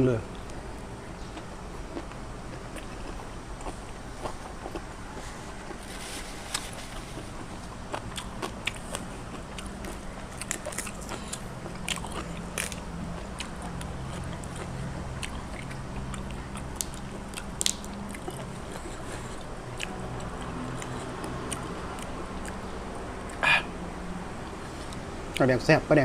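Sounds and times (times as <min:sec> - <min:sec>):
steady low hum: 0:00.0 - 0:26.0
person chewing food: 0:00.3 - 0:23.7
crisp crunches and clicks: 0:16.1 - 0:19.0.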